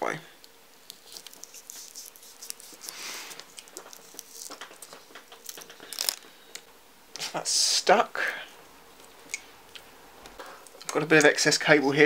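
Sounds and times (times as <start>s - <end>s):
crinkling rustles: 0.8s - 6.6s.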